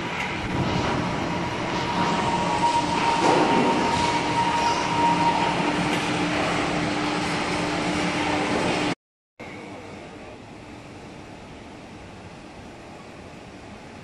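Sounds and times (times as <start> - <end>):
roller coaster wheels rumbling: 0.0 - 8.9.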